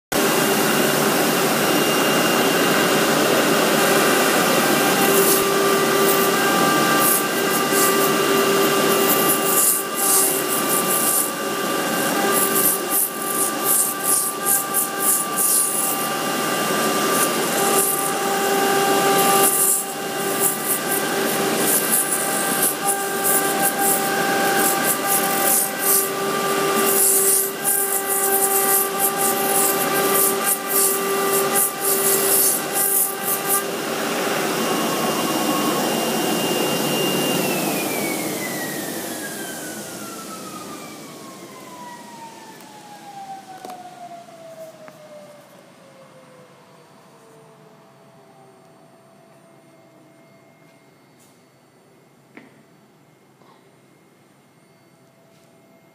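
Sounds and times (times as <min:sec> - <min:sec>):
router spindle whine: 0:00.1 - 0:53.2
bit cutting plastic: 0:03.8 - 0:33.8.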